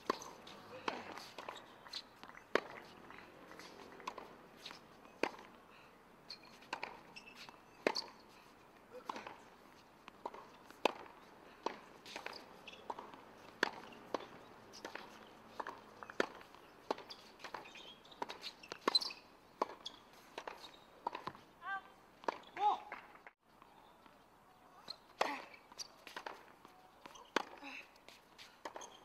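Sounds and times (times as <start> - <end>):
rackets striking tennis ball: 0.0 - 5.6, 6.4 - 8.3, 8.9 - 21.4, 25.0 - 27.7
tennis ball bouncing: 0.0 - 5.6, 6.4 - 21.4, 22.2 - 23.3, 24.9 - 27.6, 28.4 - 29.0.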